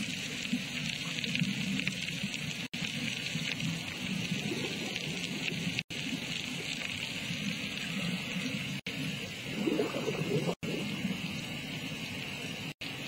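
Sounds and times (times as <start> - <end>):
underwater suction pipe bubbling: 3.5 - 12.0.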